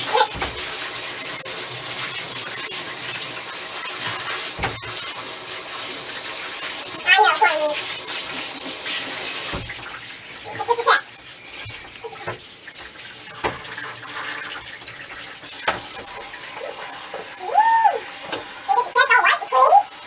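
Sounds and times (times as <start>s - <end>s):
shower sprayer water running: 0.0s - 20.0s
knocks against tub: 4.6s - 4.9s.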